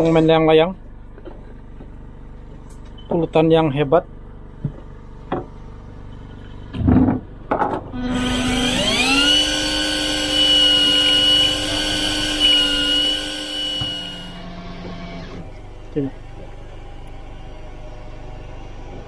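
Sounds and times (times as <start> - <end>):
fishing reel motor whine: 8.0 - 16.2.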